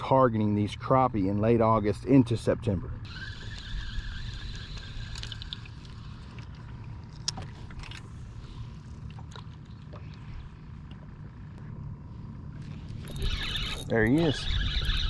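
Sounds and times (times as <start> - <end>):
boat engine low hum: 0.0 - 15.0
wavering whine: 2.8 - 15.0.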